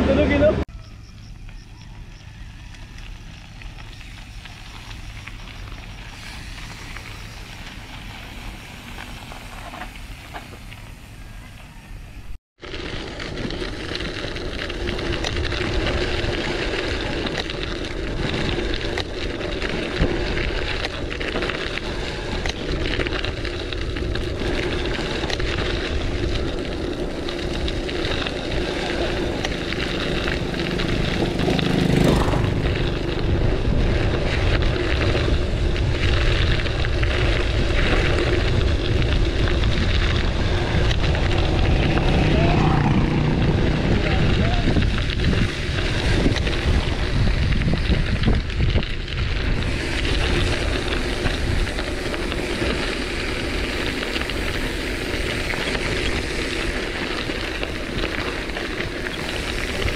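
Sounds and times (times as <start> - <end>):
bike tyres rolling on trail: 0.0 - 59.9
wind buffeting microphone: 14.1 - 59.9.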